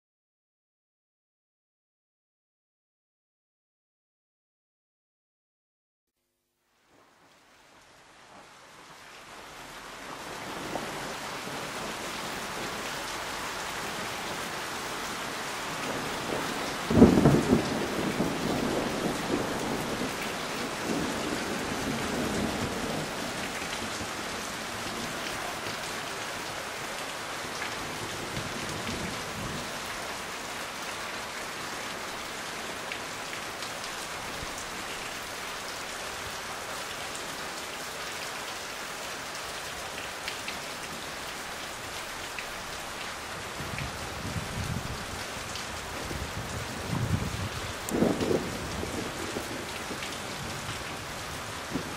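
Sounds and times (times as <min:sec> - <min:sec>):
steady rain: 0:06.4 - 0:51.9
thunderclap rumbling: 0:15.7 - 0:25.1, 0:46.0 - 0:51.9.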